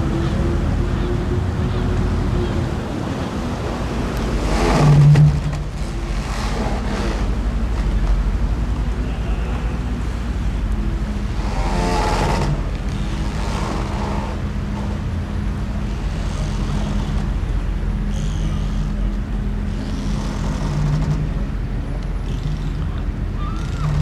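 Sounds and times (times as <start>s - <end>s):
low engine rumble: 0.0s - 24.0s.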